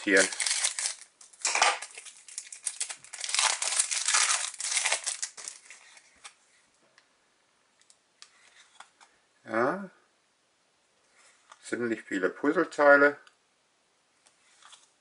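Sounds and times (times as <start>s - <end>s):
foil wrapper crinkling: 0.0s - 6.0s.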